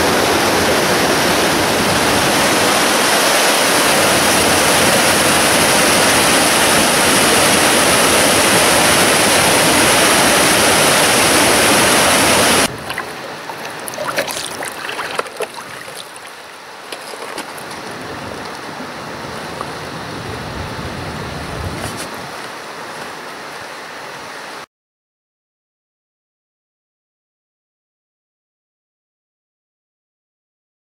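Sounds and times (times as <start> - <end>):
meltwater torrent rushing over boulders: 0.0 - 24.7
water lapping at floating ice: 1.9 - 20.5.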